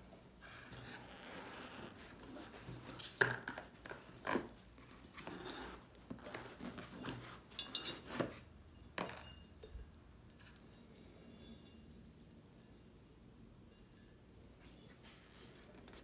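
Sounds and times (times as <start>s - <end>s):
light china clinks: 7.5s - 15.0s.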